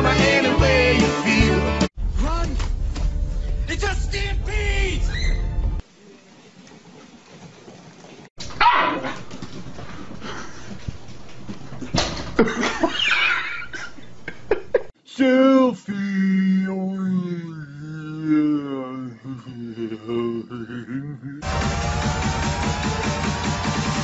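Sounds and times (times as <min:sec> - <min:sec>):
dogs barking and yipping: 0:08.4 - 0:09.4.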